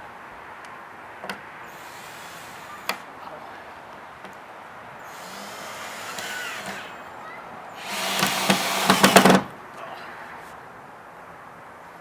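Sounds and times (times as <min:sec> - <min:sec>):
drill driving screws into wood: 0:01.7 - 0:03.0, 0:05.0 - 0:07.0, 0:07.8 - 0:09.5
drill rapid clicking: 0:05.1 - 0:06.9, 0:07.8 - 0:09.5.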